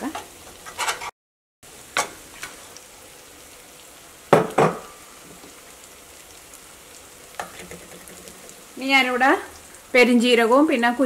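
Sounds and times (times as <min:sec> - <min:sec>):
food sizzling in a pan: 0:00.0 - 0:11.0
metal spatula scraping: 0:00.7 - 0:01.1.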